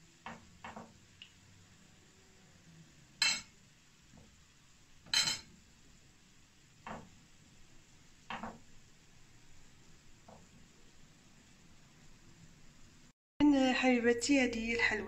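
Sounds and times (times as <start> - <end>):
metal spoon clinking on plate: 3.2 - 3.5, 5.1 - 5.5.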